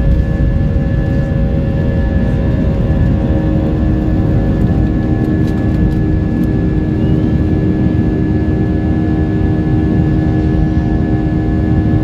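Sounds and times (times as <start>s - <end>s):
humming engine tones: 0.0s - 12.0s
jet engine rumble: 0.0s - 12.0s.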